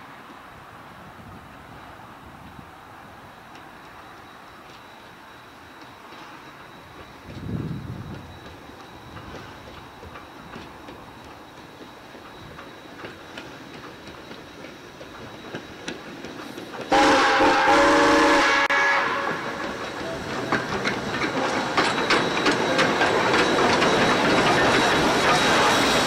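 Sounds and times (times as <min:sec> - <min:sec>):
steam locomotive passing: 0:00.0 - 0:26.0
wheels clicking on rail joints: 0:02.4 - 0:17.4, 0:19.2 - 0:26.0
steam whistle chord: 0:16.9 - 0:20.8.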